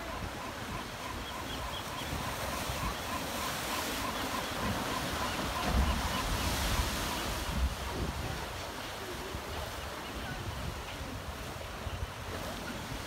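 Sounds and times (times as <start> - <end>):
wind buffeting microphone: 5.5 - 13.0.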